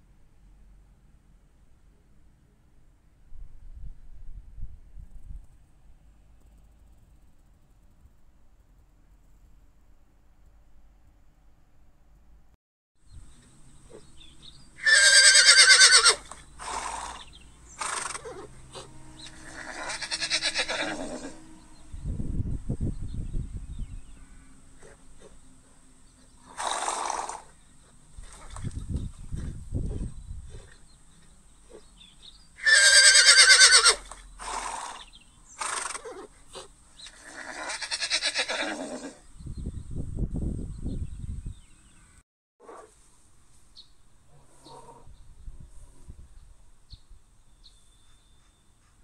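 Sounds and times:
horse whinnying: 0:14.8 - 0:21.4, 0:26.5 - 0:27.5, 0:32.6 - 0:39.2.

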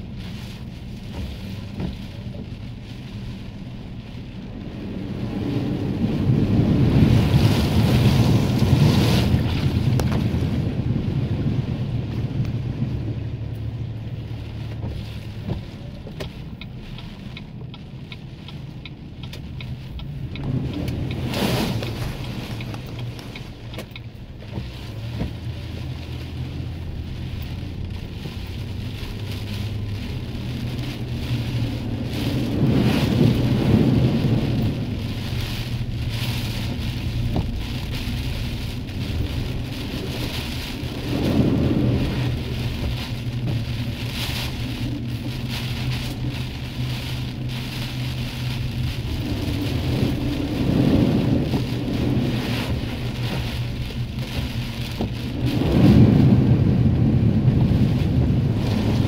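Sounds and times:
heavy rain: 0:00.0 - 0:59.0
thunder rumbling: 0:26.3 - 0:59.0.

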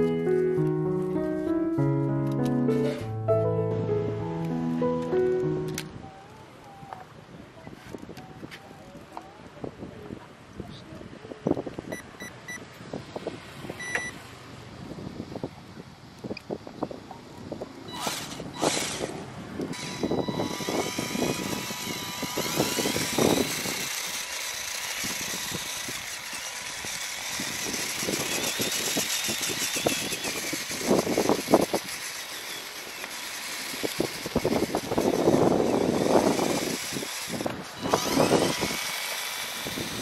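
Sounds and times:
electric motor whining: 0:17.7 - 0:40.0.

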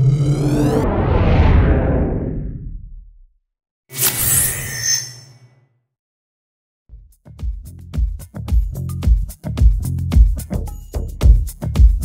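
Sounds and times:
deep whoosh: 0:00.0 - 0:03.2
low rumble: 0:00.0 - 0:03.3.

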